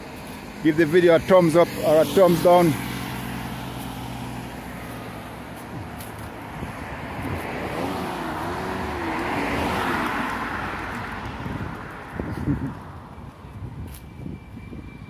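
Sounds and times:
car passing: 0:00.0 - 0:13.4
motorcycle engine: 0:07.2 - 0:10.5.

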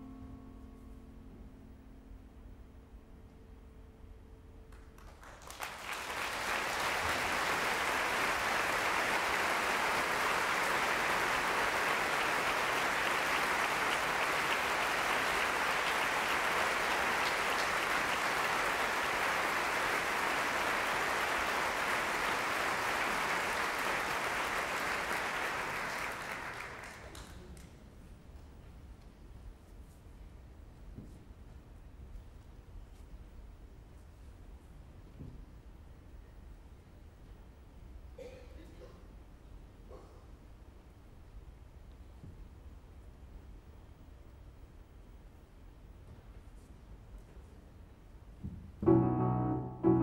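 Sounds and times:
audience applause: 0:04.7 - 0:27.6.

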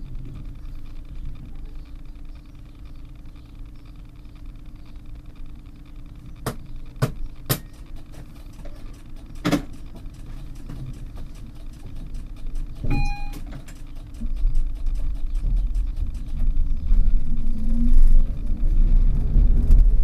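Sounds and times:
tram equipment humming: 0:00.0 - 0:20.0
sharp clicks: 0:00.4 - 0:18.4
short beep: 0:12.9 - 0:13.5.

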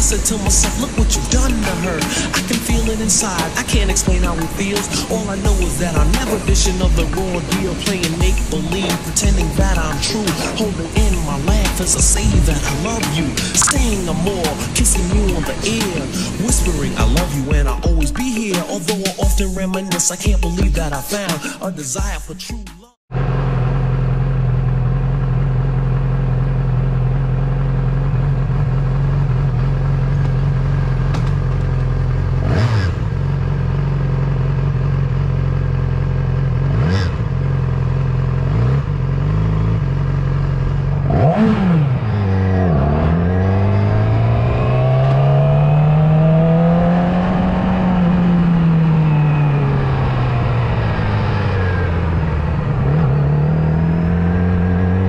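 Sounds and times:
motorcycle engine running: 0:00.0 - 0:18.4, 0:23.1 - 0:55.0
short clicks: 0:13.6 - 0:13.8.

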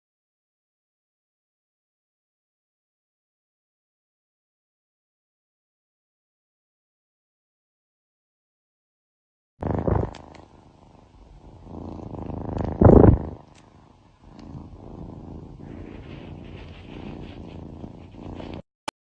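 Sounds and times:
cat purring: 0:09.6 - 0:18.7.

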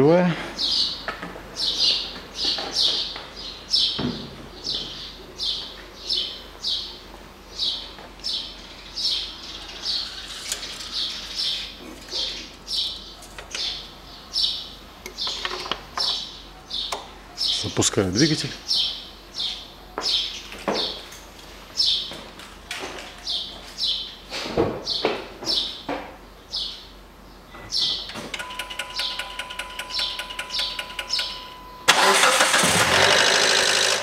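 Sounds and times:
small bird chirping: 0:28.8 - 0:31.8.

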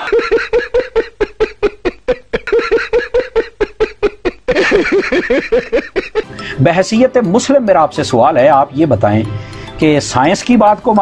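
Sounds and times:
man laughing loudly: 0:00.0 - 0:06.4.

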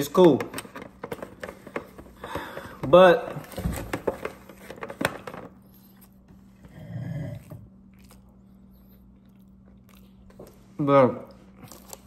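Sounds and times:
crackly eating crunches: 0:05.6 - 0:12.0.

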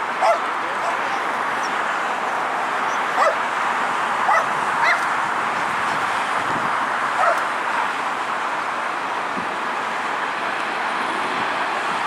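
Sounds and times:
jet engine noise: 0:00.0 - 0:12.0
dog yelping: 0:00.2 - 0:01.1, 0:03.2 - 0:03.4, 0:04.3 - 0:05.0, 0:07.2 - 0:07.4.

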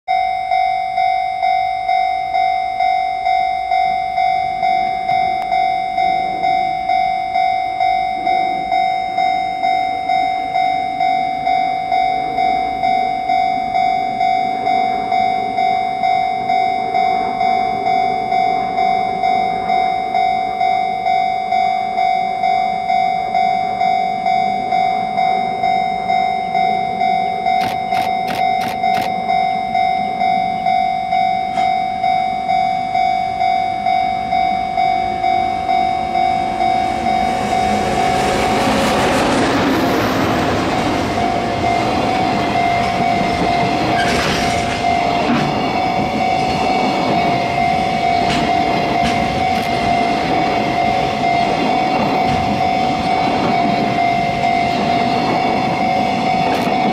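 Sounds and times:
level crossing bell ringing: 0:00.1 - 0:38.6
freight train rumble: 0:10.4 - 0:29.8, 0:30.5 - 0:56.9.

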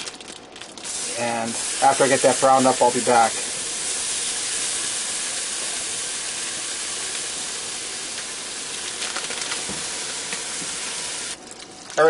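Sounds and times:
plastic wrapper rustling: 0:00.0 - 0:01.0, 0:08.7 - 0:10.6
sausage sizzling in pot: 0:00.8 - 0:11.4.

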